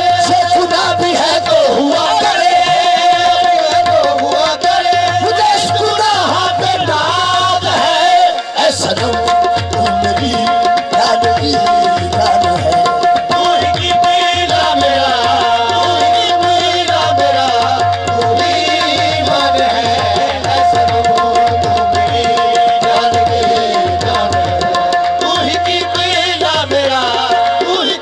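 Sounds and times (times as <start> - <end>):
harmonium melody: 0.0 - 28.0
tabla beat: 0.0 - 28.0.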